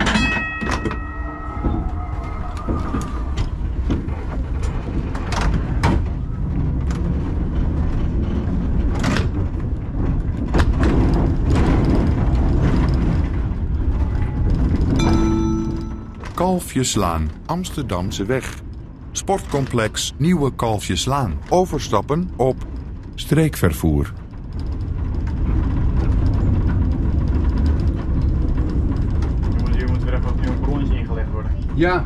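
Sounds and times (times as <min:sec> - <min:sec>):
wheels clacking over rail joints: 0:00.0 - 0:17.1, 0:24.2 - 0:32.0
tram rumbling: 0:00.0 - 0:32.0
brief ringing tone: 0:15.0 - 0:16.4.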